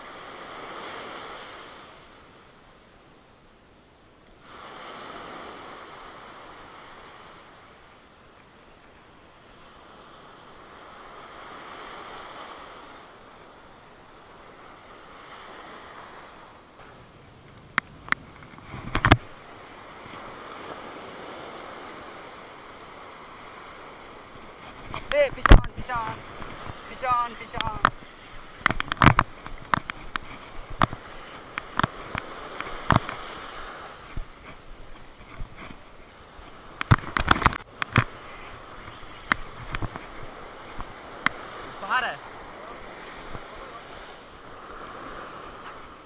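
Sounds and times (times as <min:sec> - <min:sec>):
small waves breaking on sand: 0:00.0 - 0:46.0
gear knocks and taps: 0:17.8 - 0:19.2, 0:24.9 - 0:33.2.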